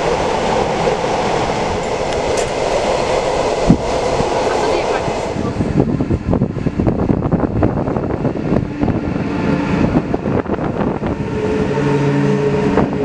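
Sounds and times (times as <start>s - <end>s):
wheels clattering on rail: 0.0s - 5.4s
train rumbling past: 0.0s - 13.0s.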